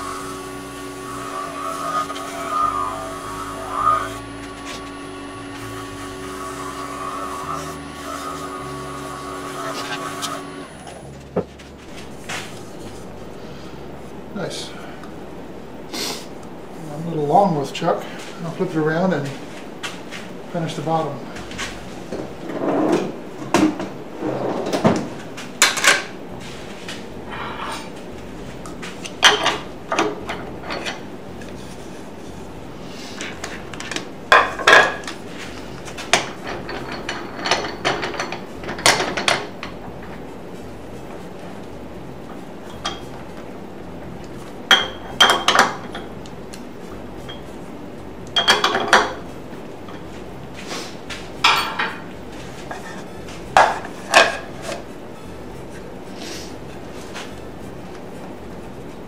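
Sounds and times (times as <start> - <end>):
metal lathe parts clanking: 36.1 - 39.8.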